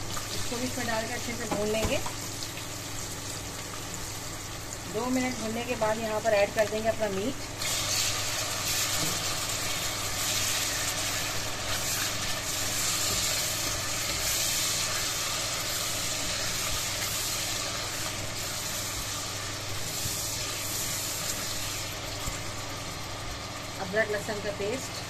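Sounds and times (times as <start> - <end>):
meat sizzling in hot oil: 0.0 - 25.0
spatula stirring: 7.6 - 22.0.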